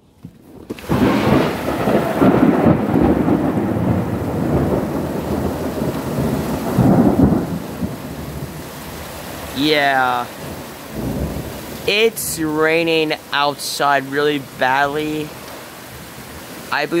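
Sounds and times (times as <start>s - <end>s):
heavy rain: 0.1s - 17.0s
rolling thunder rumble: 0.4s - 13.3s.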